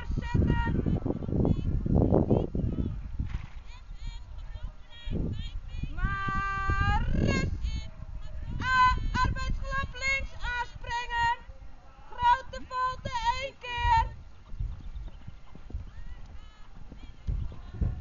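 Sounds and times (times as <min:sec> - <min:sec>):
high singing voice: 0:03.8 - 0:11.4.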